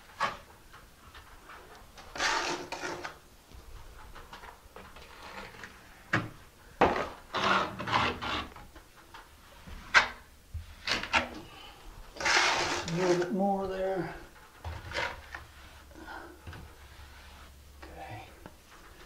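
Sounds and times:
trowel scraping mortar: 2.0 - 3.2, 6.9 - 8.6, 12.2 - 13.4.

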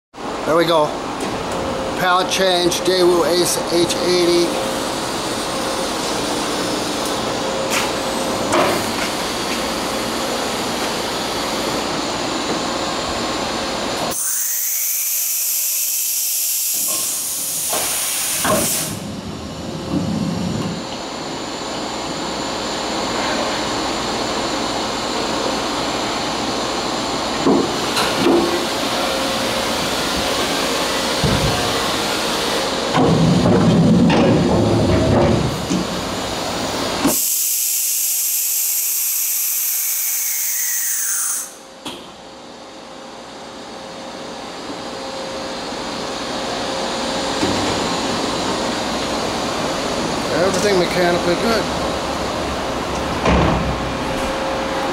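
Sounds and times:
machine running noise: 0.2 - 54.9
loud hissing air blast: 15.9 - 19.2, 37.1 - 38.0.

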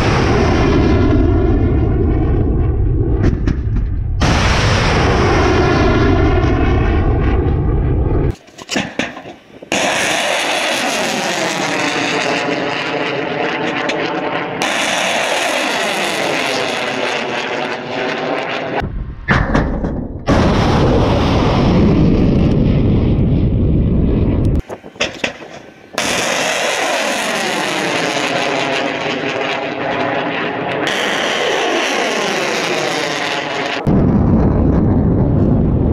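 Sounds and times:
heavy blast: 0.0 - 8.4, 18.8 - 30.1, 30.8 - 35.9
rocket motors roaring: 0.0 - 35.9.

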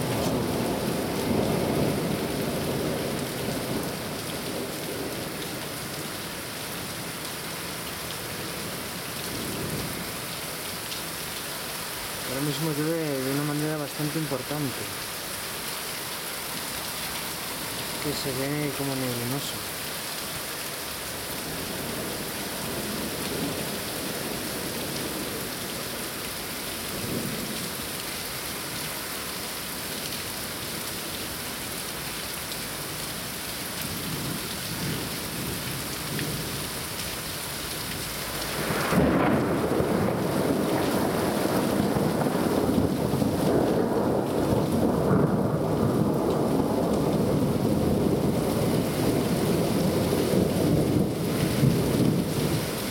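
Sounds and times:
heavy rain: 0.0 - 52.9
thunder rumbling: 38.5 - 52.7.

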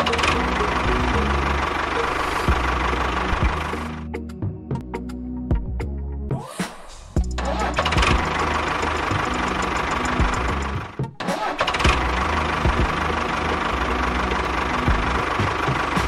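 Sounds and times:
tractor engine chugging: 0.0 - 4.2, 7.3 - 16.0.

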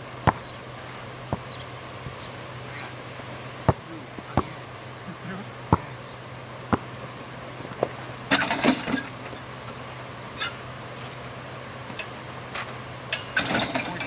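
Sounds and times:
basketball thudding: 0.2 - 0.6, 1.3 - 1.5, 3.6 - 4.6, 5.7 - 5.9, 6.7 - 6.9
faint voices: 2.6 - 3.1, 3.7 - 6.1.

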